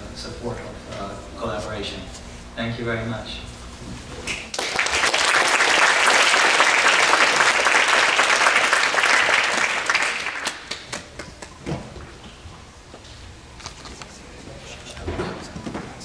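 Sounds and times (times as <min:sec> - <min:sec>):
audience applauding: 0:04.5 - 0:11.6.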